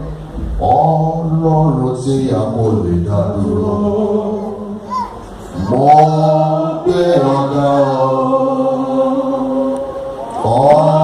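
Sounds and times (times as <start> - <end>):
voices chanting together: 5.5 - 11.0.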